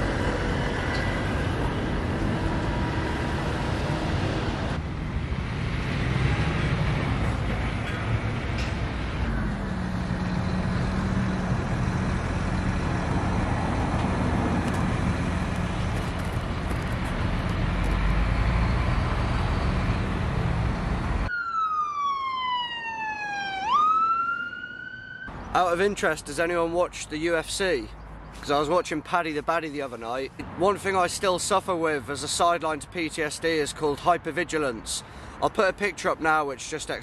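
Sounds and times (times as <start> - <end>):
road traffic passing: 0.0 - 37.0
ambulance siren wailing: 21.2 - 25.3.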